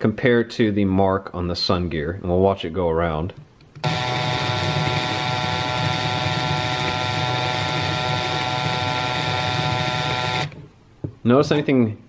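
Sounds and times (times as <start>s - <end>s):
drill whine with gears whirring: 3.8s - 10.6s.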